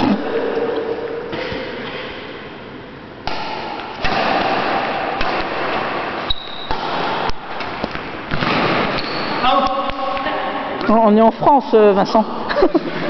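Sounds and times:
rackets striking shuttlecock: 0:03.2 - 0:10.3.

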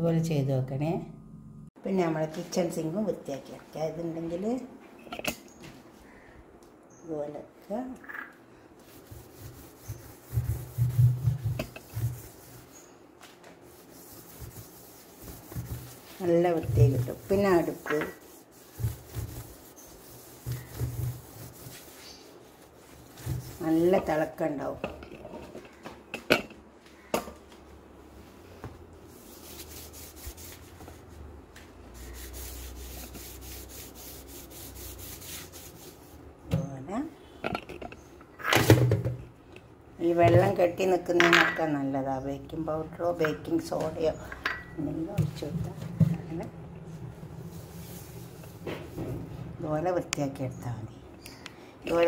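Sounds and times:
scrubbing steel sink: 0:08.8 - 0:12.9, 0:13.6 - 0:25.8, 0:29.1 - 0:31.1, 0:31.9 - 0:36.2, 0:42.7 - 0:50.0.

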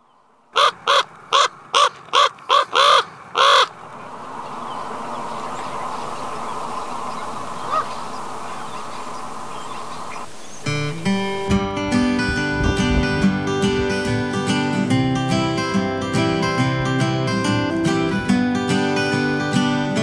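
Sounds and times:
steady background noise: 0:00.2 - 0:11.5
raven cawing: 0:00.5 - 0:10.9.

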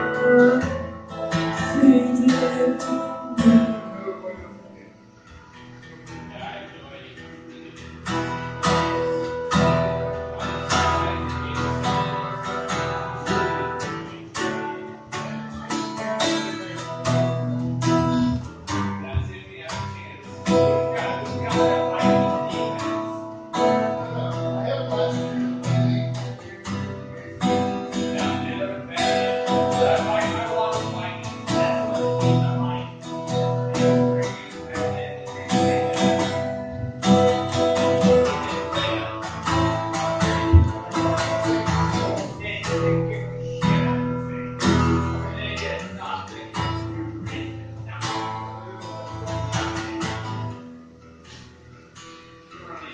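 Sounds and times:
acoustic guitar strumming: 0:00.0 - 0:52.9.

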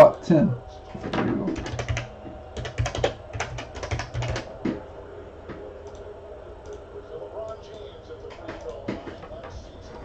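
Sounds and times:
typing on a keyboard: 0:01.6 - 0:04.5.

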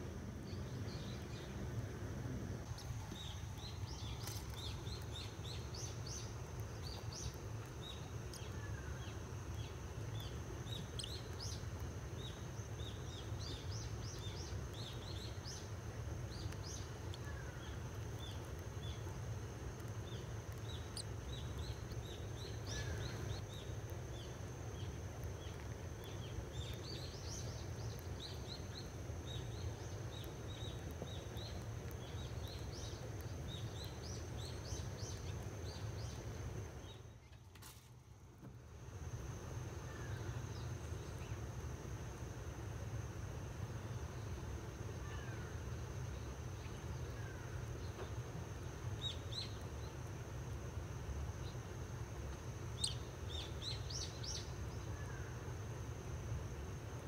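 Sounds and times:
steady low rumble: 0:00.0 - 0:37.2.

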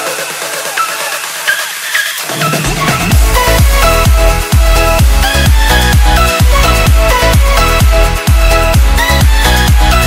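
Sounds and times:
electronic dance music: 0:00.0 - 0:10.0.

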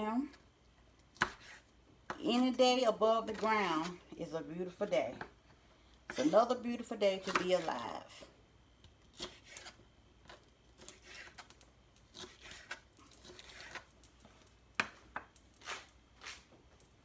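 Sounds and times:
knife slicing on wooden board: 0:01.2 - 0:01.7, 0:09.2 - 0:09.8, 0:10.8 - 0:13.9.

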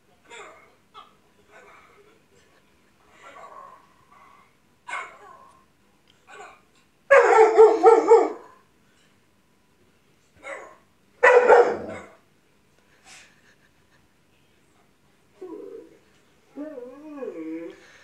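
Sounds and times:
dog barking: 0:04.9 - 0:05.3, 0:07.1 - 0:08.6, 0:10.4 - 0:12.2.

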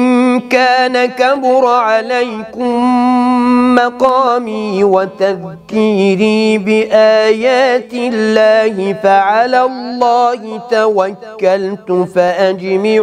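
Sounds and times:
man chanting melodically: 0:00.0 - 0:13.0.

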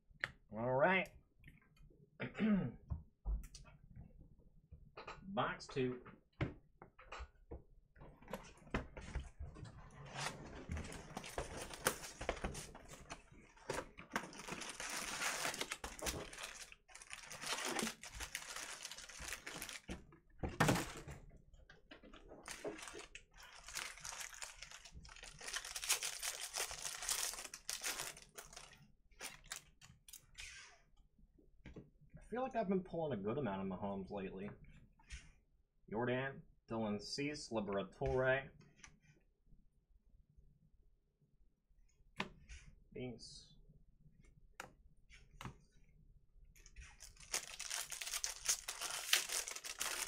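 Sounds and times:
cardboard clicks and rustles: 0:10.0 - 0:21.1, 0:46.9 - 0:50.0
foil packs crinkling: 0:14.2 - 0:20.0, 0:22.4 - 0:29.7, 0:47.0 - 0:50.0
foil wrapper tearing: 0:14.3 - 0:19.9, 0:22.5 - 0:28.7, 0:47.0 - 0:50.0.

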